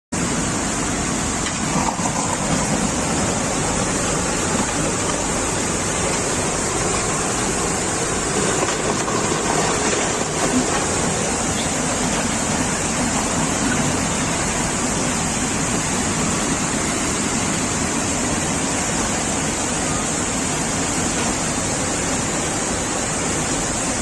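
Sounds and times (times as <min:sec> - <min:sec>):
flood water rushing: 0:00.2 - 0:24.0.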